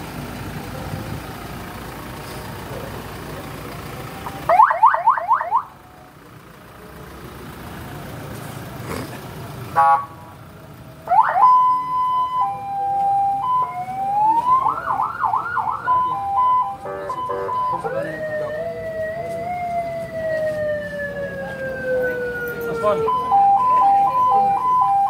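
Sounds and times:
electronic siren changing tones: 4.5s - 5.7s, 11.1s - 25.0s.

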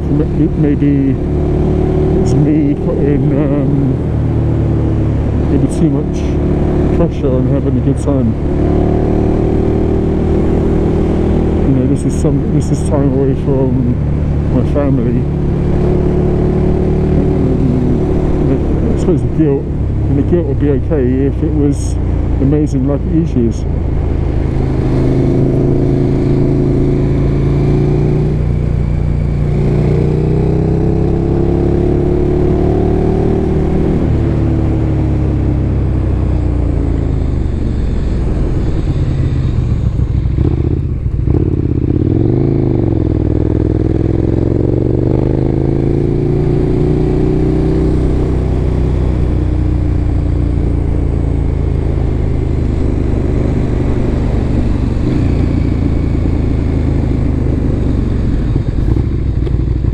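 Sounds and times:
motorcycle engine revving: 0.0s - 59.9s
wind noise: 37.1s - 42.6s.

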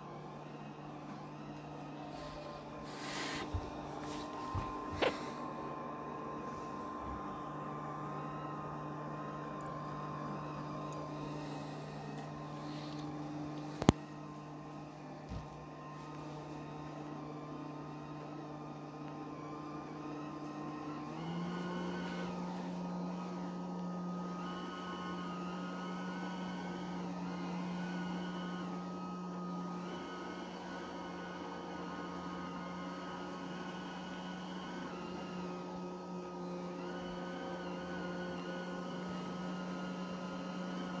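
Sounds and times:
robot vacuum cleaner whirring: 0.0s - 41.0s.

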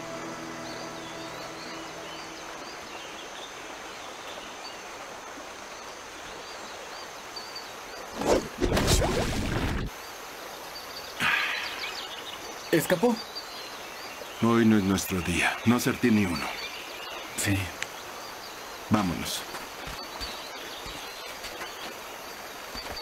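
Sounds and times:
music: 0.0s - 3.0s
birds chirping: 0.0s - 23.0s
steady hiss: 9.4s - 23.0s.

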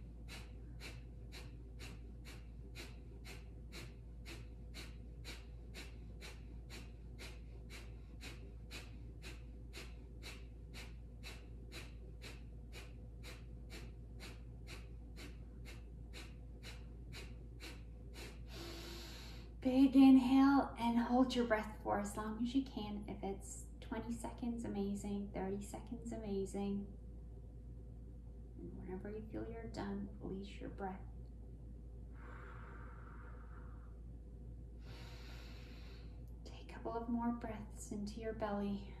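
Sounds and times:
long full breath: 0.0s - 19.6s, 32.1s - 34.0s, 34.7s - 36.3s.

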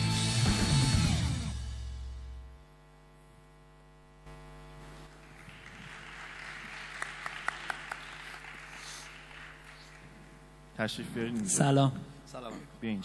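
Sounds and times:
entry music: 0.0s - 2.2s
electrical mains hum: 1.4s - 13.0s
audience applause: 5.1s - 10.4s.

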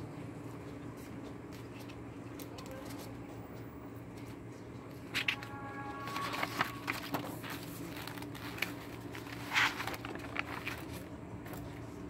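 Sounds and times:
faint steady hum: 0.0s - 12.0s
paper rustling: 4.2s - 12.0s.

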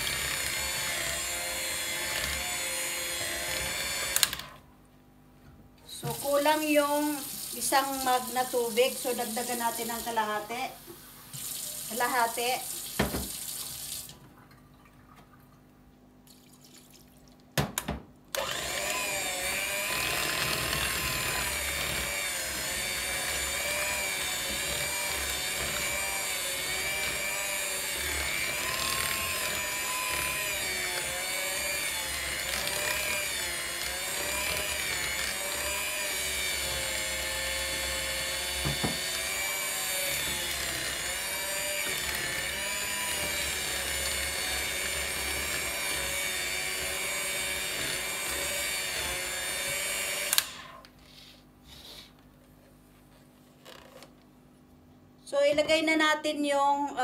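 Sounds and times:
electric hand mixer running: 0.0s - 4.6s, 18.4s - 50.8s.

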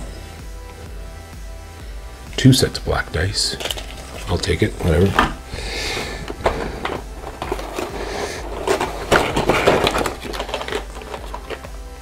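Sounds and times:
plastic trays rattling and crinkling: 3.5s - 5.3s, 5.9s - 11.7s.

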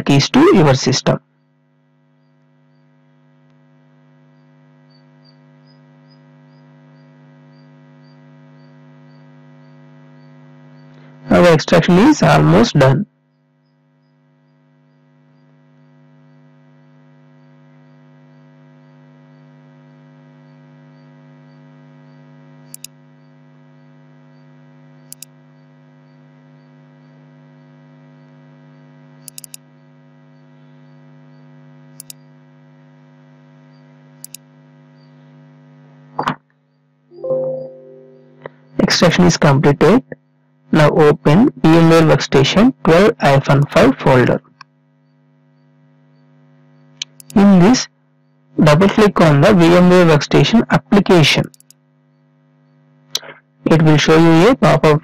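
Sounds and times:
low electrical mains hum: 0.0s - 55.0s
computer mouse clicks: 22.7s - 23.0s, 25.1s - 25.3s, 29.2s - 29.6s, 32.0s - 32.2s, 34.2s - 34.4s, 47.0s - 47.4s, 51.4s - 51.8s.

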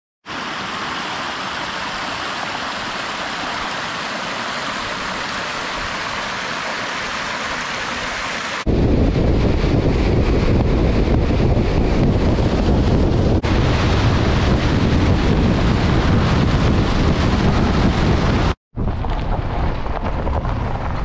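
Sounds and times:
waterfall pouring into pool: 0.3s - 8.7s
wind buffeting microphone: 8.6s - 21.0s.

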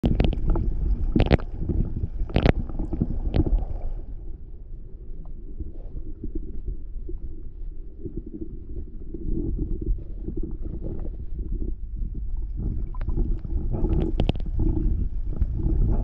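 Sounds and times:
muffled underwater rumbling and sloshing: 0.0s - 16.0s.

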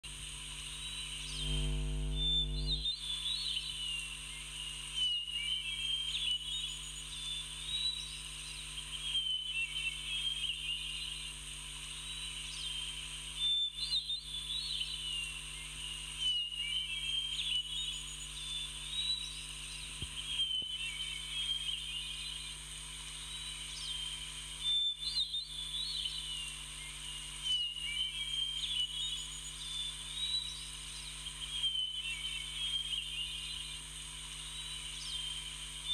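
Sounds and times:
steady background hiss: 0.1s - 35.9s.

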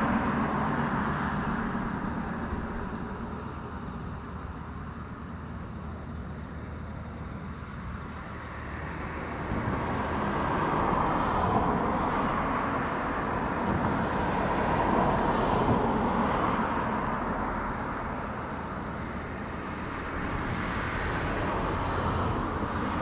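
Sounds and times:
vehicle passing by: 0.0s - 3.5s, 19.8s - 23.0s.

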